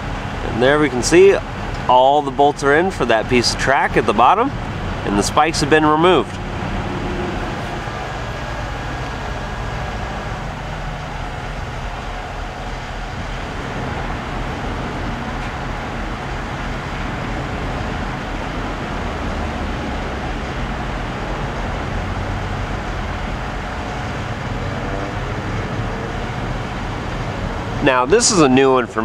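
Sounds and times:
construction machinery engine rumble: 0:00.0 - 0:29.0.

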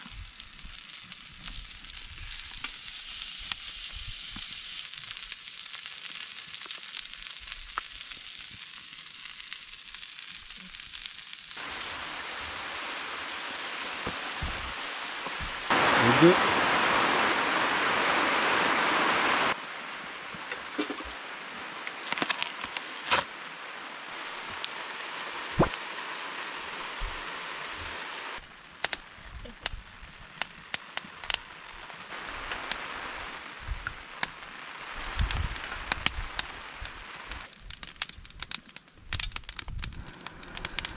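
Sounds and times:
sizzling hiss: 0:00.0 - 0:40.9
wood fire crackling: 0:00.0 - 0:40.9
sharp pops: 0:25.6 - 0:25.8.

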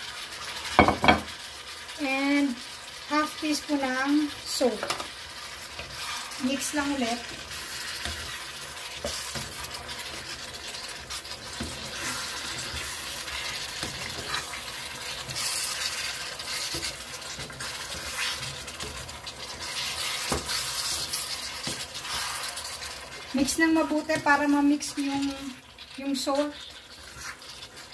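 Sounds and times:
frying sizzle: 0:00.0 - 0:27.9
wooden spatula scraping pan: 0:04.8 - 0:25.5.

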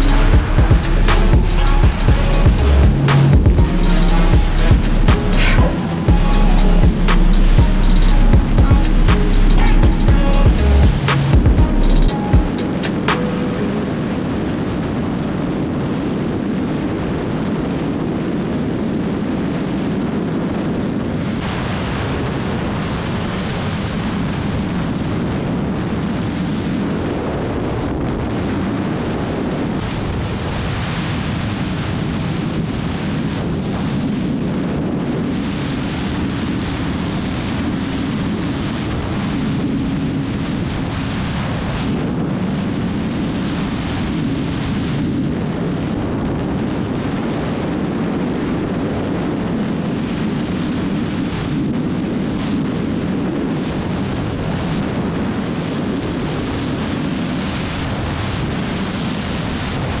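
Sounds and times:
wind rushing over microphone: 0:00.0 - 1:00.0.

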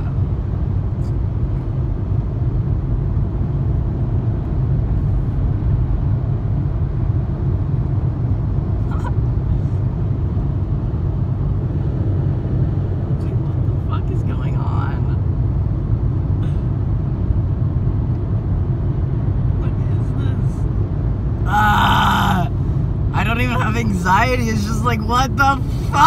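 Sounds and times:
car road and engine rumble: 0:00.0 - 0:26.0.

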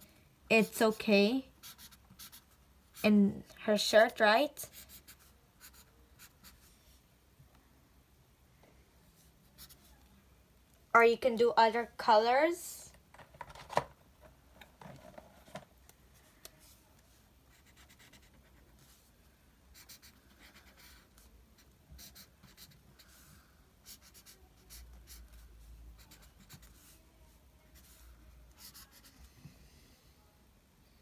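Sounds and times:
marker scribbling on paper: 0:01.6 - 0:03.2, 0:04.6 - 0:06.8, 0:09.6 - 0:10.0, 0:17.5 - 0:19.1, 0:19.7 - 0:23.2, 0:23.8 - 0:27.0, 0:27.7 - 0:29.2.

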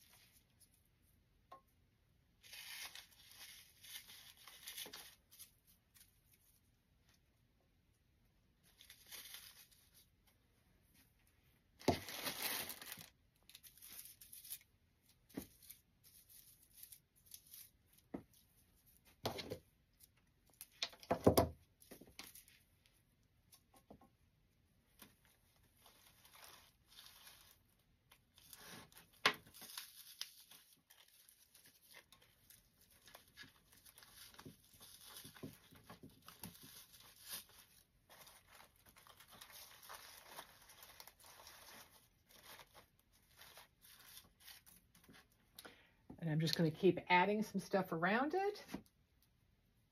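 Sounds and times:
stems rustling and crinkling: 0:02.4 - 0:07.3, 0:08.5 - 0:24.0, 0:24.8 - 0:45.6.

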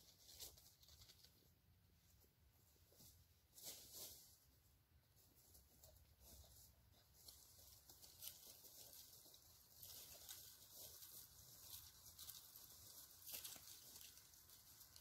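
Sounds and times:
dry leaves crunching underfoot: 0:07.2 - 0:15.0.

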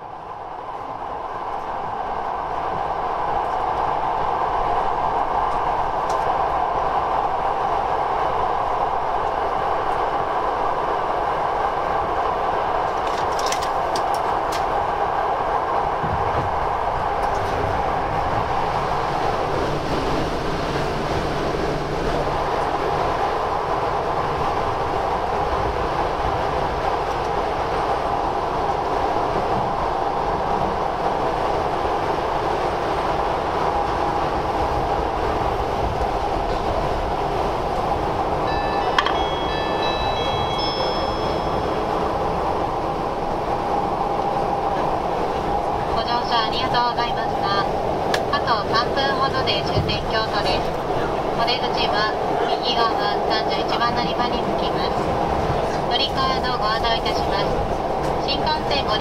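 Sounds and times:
train rumble and rail noise: 0:00.0 - 0:59.0
train wheel clicks: 0:12.9 - 0:14.7.

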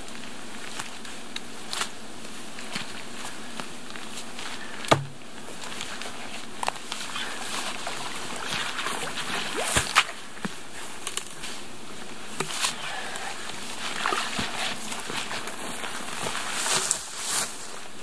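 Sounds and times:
log knocking: 0:04.9 - 0:05.2
water sloshing and splashing: 0:06.8 - 0:10.6, 0:12.4 - 0:17.4.

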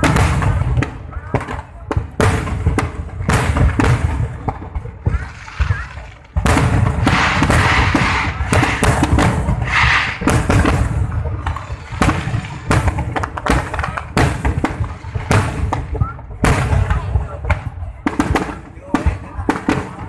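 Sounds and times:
firework shells booming: 0:00.0 - 0:20.0
hissing crackle: 0:05.2 - 0:14.0.

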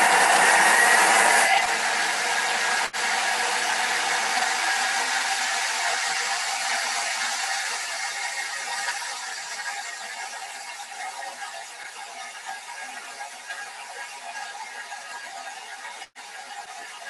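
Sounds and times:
kitchen blender whirring: 0:00.0 - 0:10.6.

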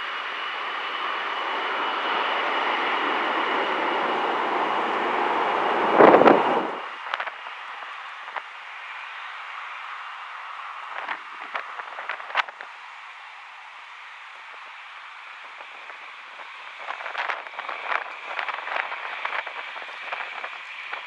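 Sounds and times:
jet engines whining: 0:00.0 - 0:21.0
loud rushing blast: 0:04.7 - 0:06.9.

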